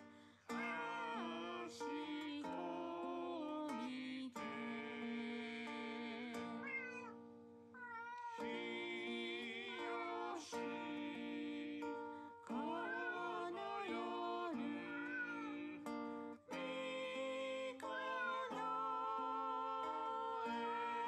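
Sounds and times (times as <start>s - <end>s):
guitar music: 0.0s - 21.0s
cat meowing: 0.5s - 1.4s, 6.6s - 8.5s, 12.8s - 13.4s, 14.9s - 15.5s, 17.9s - 18.8s.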